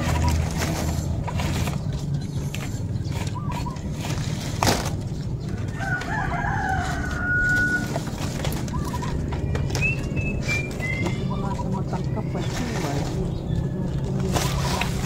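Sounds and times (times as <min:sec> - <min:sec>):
palm leaves rustling: 0:00.0 - 0:15.0
rooster crowing: 0:05.7 - 0:08.2.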